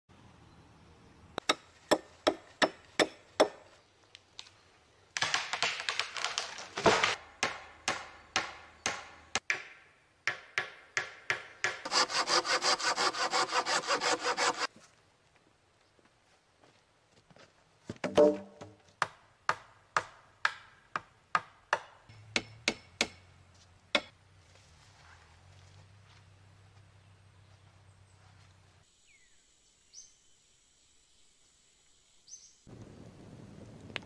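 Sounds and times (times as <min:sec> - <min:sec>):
sharp wooden knocks: 0:05.2 - 0:12.7
hand saw cutting wood: 0:11.6 - 0:14.7.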